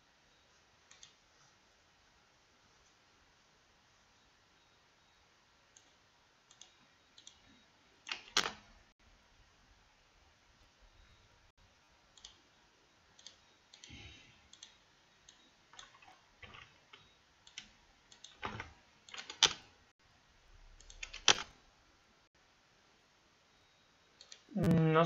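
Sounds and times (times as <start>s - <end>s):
computer mouse and keyboard clicks: 13.2s - 19.6s, 20.8s - 21.5s.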